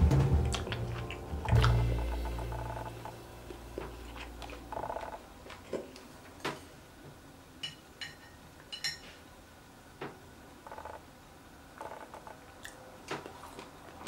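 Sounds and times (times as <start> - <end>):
soft background music: 0.0 - 4.4.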